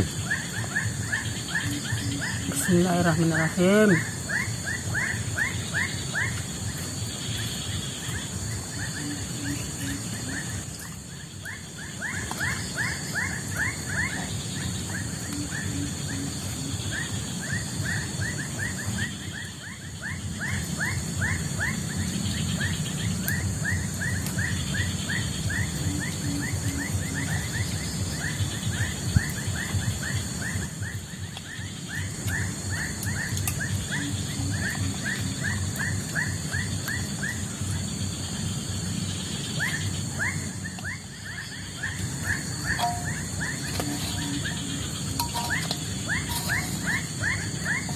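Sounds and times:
high insect drone: 0:00.0 - 0:47.9
animal chirping rapidly: 0:39.6 - 0:47.9.

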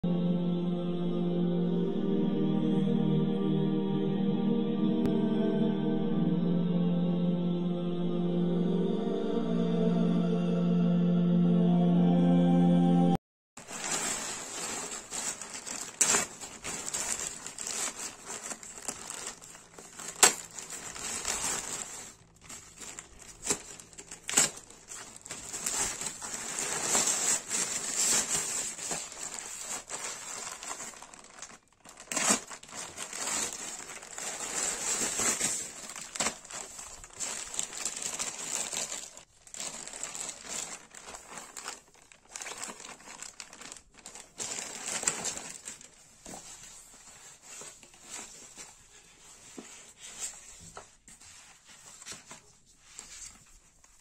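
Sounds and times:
plastic packaging crinkling: 0:13.6 - 0:46.4.

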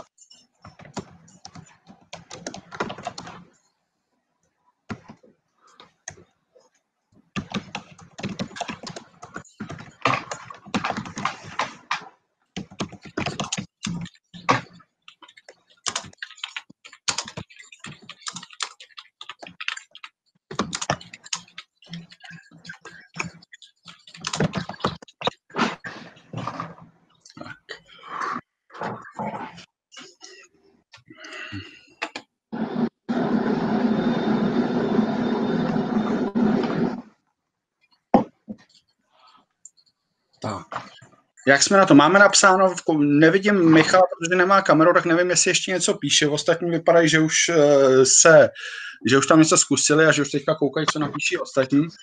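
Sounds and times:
keyboard typing clicks: 0:00.6 - 0:03.4, 0:07.4 - 0:12.0, 0:12.6 - 0:25.4.

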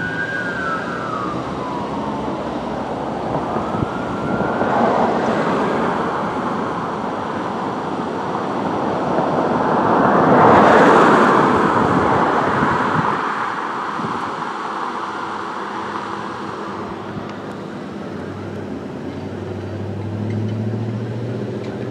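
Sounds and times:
vehicle passing close by: 0:00.0 - 0:14.4.

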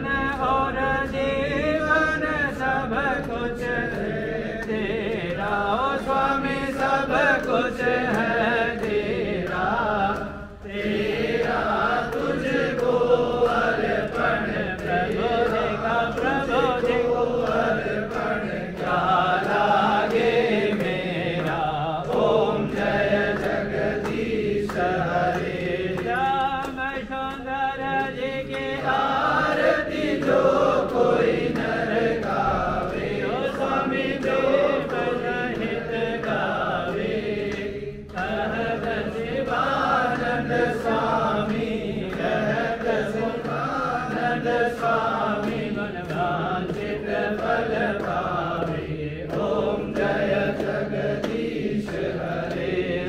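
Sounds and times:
man singing into a microphone: 0:00.0 - 0:10.8, 0:25.6 - 0:29.2
group singing a hymn: 0:00.0 - 0:53.0.

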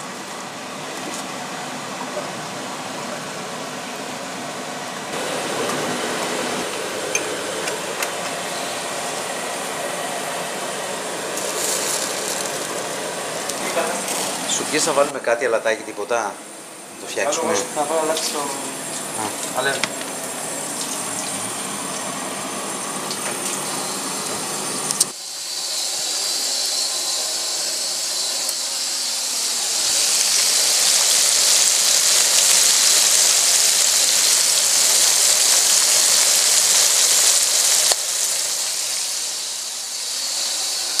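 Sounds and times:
seafood sizzling on grill: 0:05.1 - 0:15.1, 0:22.6 - 0:41.0.

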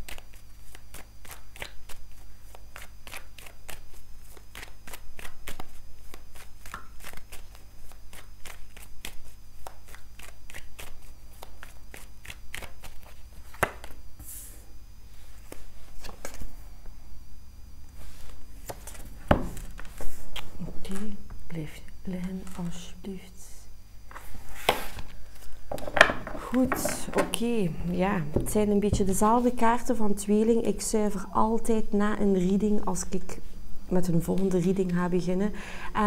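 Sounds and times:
cards being shuffled: 0:00.0 - 0:14.0, 0:15.4 - 0:16.5, 0:18.2 - 0:21.1, 0:24.1 - 0:27.3
cards dealt onto table: 0:24.1 - 0:27.4.

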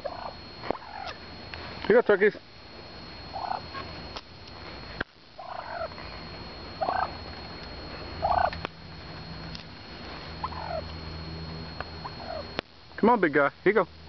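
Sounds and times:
wild turkeys calling: 0:00.0 - 0:01.2, 0:03.3 - 0:03.9, 0:05.4 - 0:06.1, 0:06.8 - 0:08.7, 0:10.4 - 0:11.0, 0:11.6 - 0:12.6.

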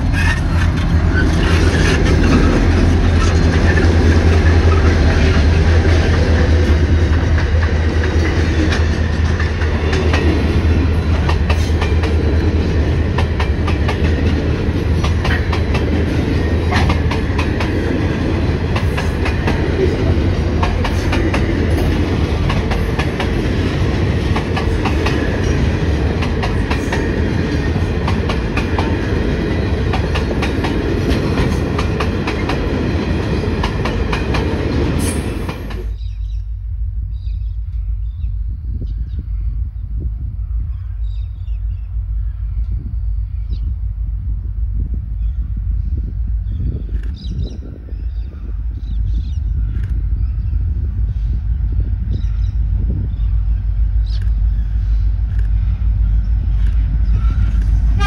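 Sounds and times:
wheels clacking on rail joints: 0:00.0 - 0:36.1
freight train rumbling past: 0:00.0 - 0:58.0.

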